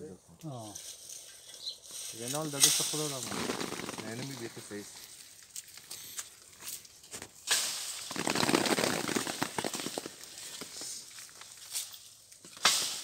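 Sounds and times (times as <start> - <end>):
plastic sheet rustling and crackling: 2.1 - 5.8, 7.0 - 12.0.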